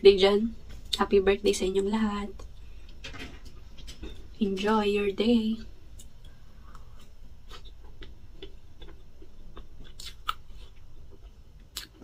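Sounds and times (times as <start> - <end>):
wet mouth smacks while chewing: 7.5 - 12.0.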